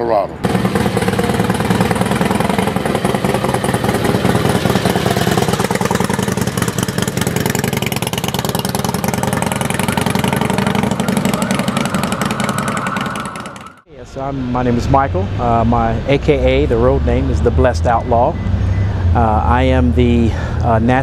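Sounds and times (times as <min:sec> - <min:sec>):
motorcycle engine idling: 0:00.4 - 0:13.8.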